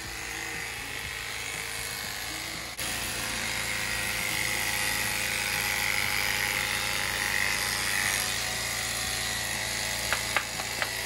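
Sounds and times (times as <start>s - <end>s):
electric clippers buzzing: 0.0s - 11.0s.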